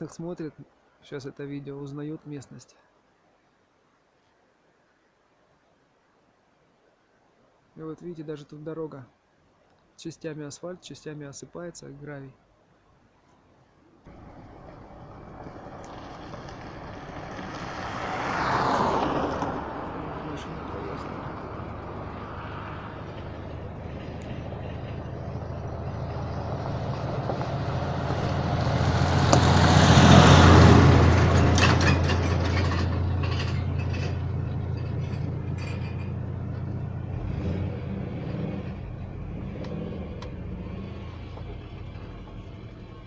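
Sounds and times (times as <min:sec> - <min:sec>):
road noise: 0:14.0 - 0:43.0
vehicle passing by: 0:14.1 - 0:43.0
car engine running: 0:22.9 - 0:43.0.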